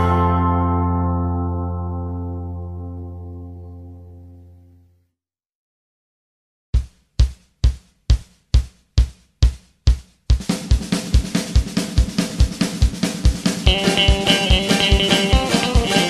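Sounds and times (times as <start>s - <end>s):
country band playing: 0.0s - 1.7s, 13.6s - 16.0s
drum hits: 6.8s - 16.0s
full drum kit with cymbals: 6.8s - 16.0s.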